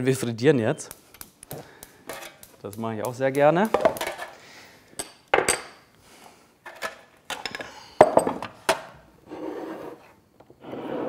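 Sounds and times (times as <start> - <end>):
pan scraping across wood: 9.2 - 11.0.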